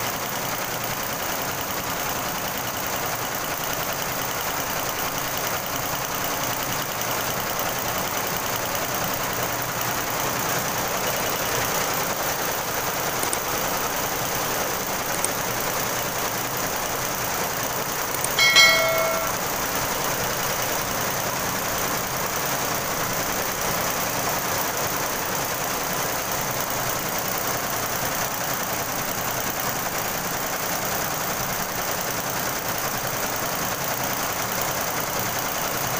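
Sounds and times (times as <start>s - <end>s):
brief chime: 18.4s - 19.4s.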